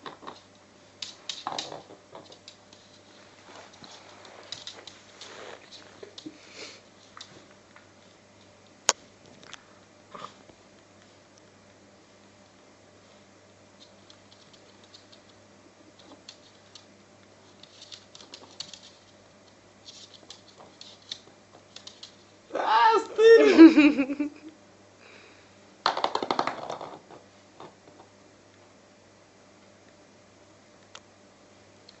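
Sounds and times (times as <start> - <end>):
dog claws clicking on floor: 0.0 - 6.4, 7.0 - 8.5, 13.8 - 15.4, 16.0 - 22.3, 25.9 - 28.1
person's voice: 22.5 - 23.9.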